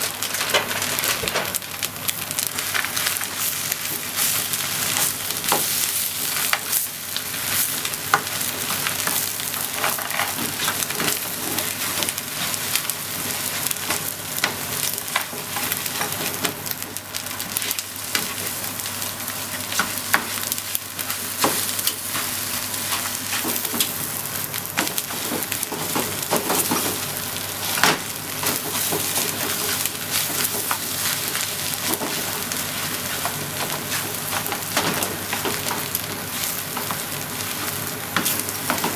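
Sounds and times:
rice sizzling in frying pan: 0:00.0 - 0:38.9.

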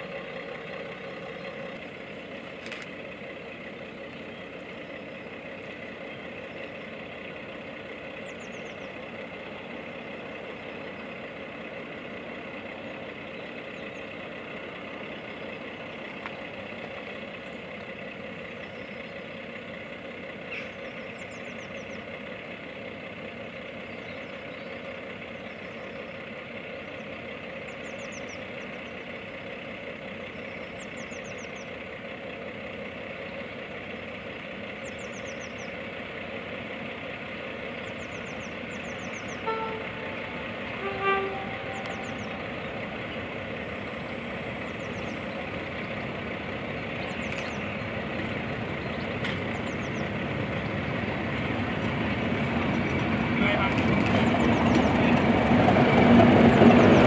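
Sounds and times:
birds chirping: 0:00.0 - 0:57.0
diesel locomotive engine: 0:00.0 - 0:57.0
two-tone train horn: 0:39.3 - 0:42.5.

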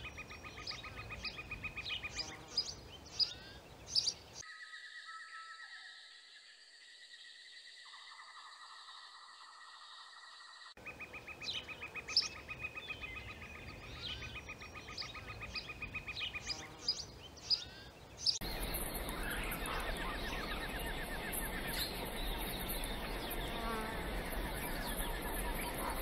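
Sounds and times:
birds chirping: 0:00.0 - 0:05.9, 0:07.8 - 0:26.0
high insect buzz: 0:18.4 - 0:26.0.

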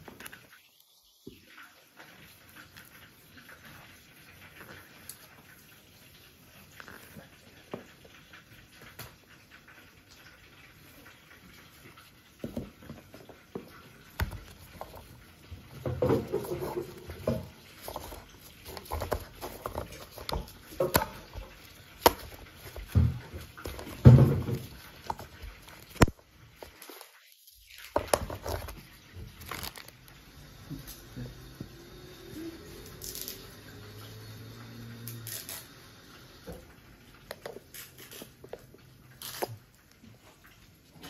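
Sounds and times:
plastic gloves rustling: 0:10.8 - 0:30.2, 0:37.5 - 0:41.0.

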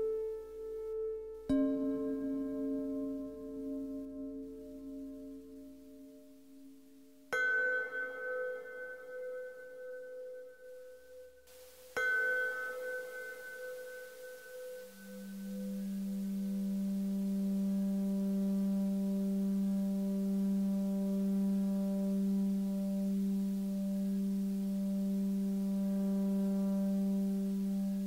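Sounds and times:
sustained low drone tone: 0:11.9 - 0:28.0.

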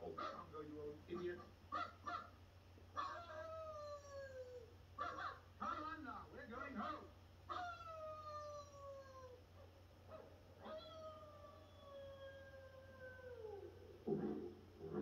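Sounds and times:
cartoon dog barking: 0:00.0 - 0:00.5, 0:01.2 - 0:02.4, 0:03.0 - 0:03.6, 0:05.0 - 0:05.4, 0:06.6 - 0:08.2
cartoon dog howling: 0:03.0 - 0:04.7, 0:07.5 - 0:09.4, 0:10.6 - 0:13.8.

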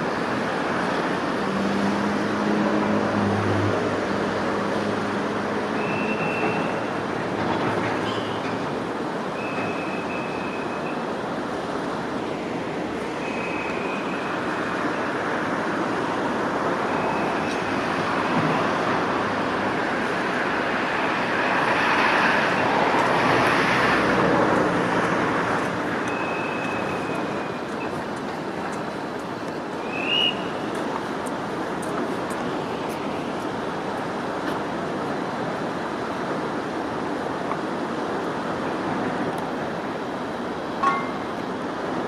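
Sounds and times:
road traffic noise: 0:00.0 - 0:42.0.

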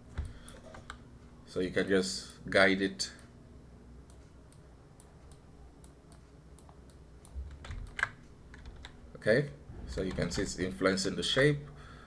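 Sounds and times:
computer keyboard and mouse clicks: 0:04.1 - 0:09.0.

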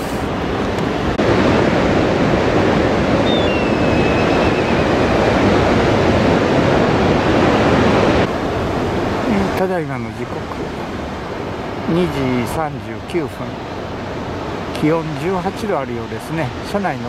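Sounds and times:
surf rushing: 0:00.0 - 0:17.0
wind: 0:00.0 - 0:17.0
bird of prey whistle falling: 0:03.2 - 0:05.0.

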